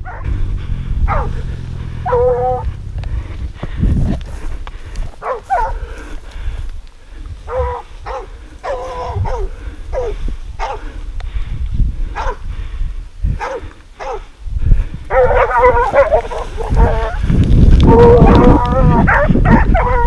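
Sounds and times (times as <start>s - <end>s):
dogs barking: 0.0s - 3.4s, 5.1s - 5.9s, 7.4s - 11.0s, 12.1s - 12.5s, 13.4s - 14.4s, 15.1s - 17.2s, 18.5s - 20.0s
low rumble: 0.0s - 13.3s.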